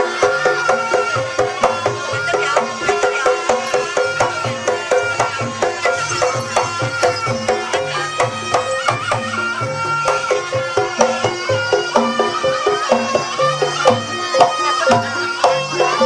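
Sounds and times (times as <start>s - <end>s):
gamelan ensemble music: 1.6s - 16.0s
wavering melody line: 3.3s - 12.2s.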